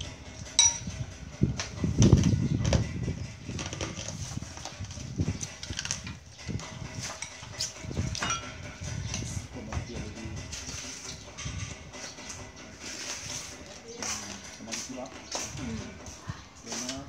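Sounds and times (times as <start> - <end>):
spoon and dishes clinking: 0.6 - 0.9, 7.0 - 8.6
faint background voices: 8.9 - 17.0.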